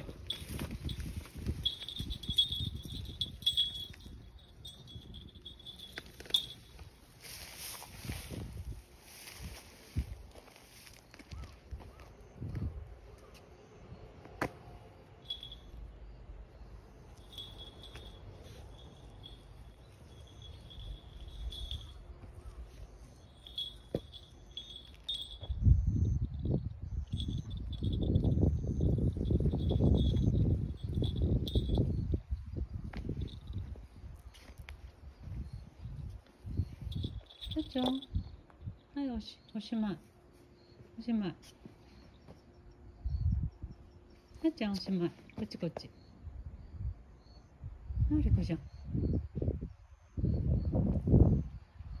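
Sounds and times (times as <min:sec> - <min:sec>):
light clicks and clinks: 0:00.0 - 0:08.4, 0:15.2 - 0:15.9, 0:17.0 - 0:25.6, 0:26.2 - 0:39.7
insects chirping: 0:00.0 - 0:52.0.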